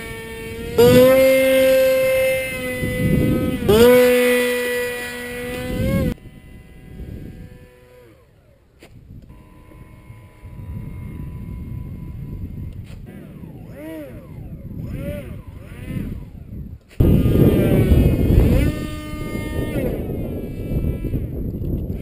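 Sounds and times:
model plane motor whining: 0.0 - 22.0
faint whine falling in pitch: 9.3 - 22.0.

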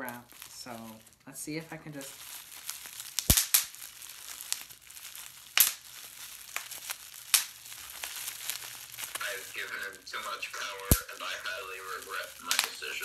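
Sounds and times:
bubble wrap crinkling: 0.0 - 13.0
bubble wrap popping: 0.0 - 13.0.

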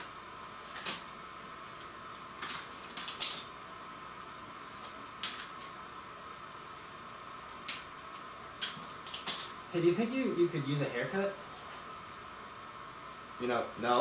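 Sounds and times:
faint steady hum: 0.0 - 14.0
cards and chips clicking on table: 5.2 - 5.7.

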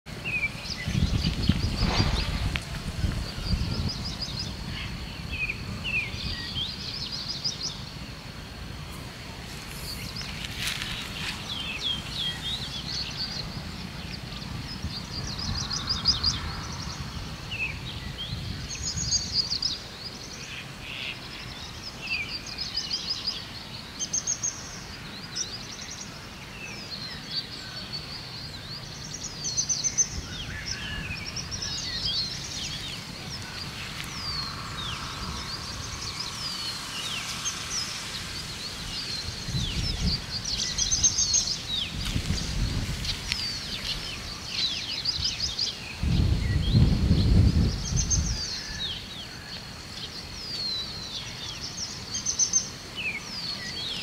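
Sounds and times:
songbirds chirping and trilling: 0.1 - 54.0
low rumble: 31.5 - 41.1.

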